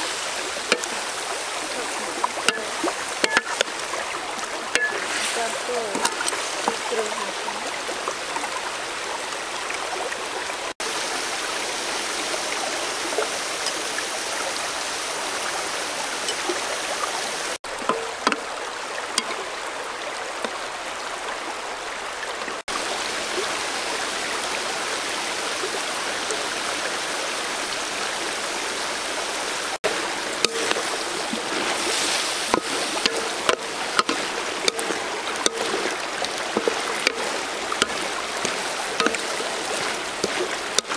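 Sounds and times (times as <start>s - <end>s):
river flowing over stones: 0.0s - 40.9s
wooden spatula tapping wok: 0.6s - 1.0s, 2.4s - 3.8s, 4.7s - 5.3s, 17.8s - 18.5s, 29.9s - 31.0s, 32.5s - 40.9s.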